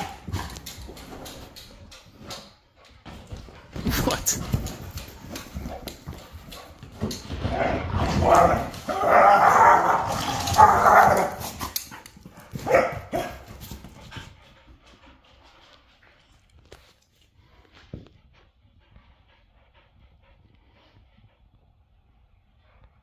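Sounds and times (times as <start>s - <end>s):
dogs barking while play-fighting: 0.0s - 0.5s, 7.5s - 11.7s, 12.4s - 13.7s.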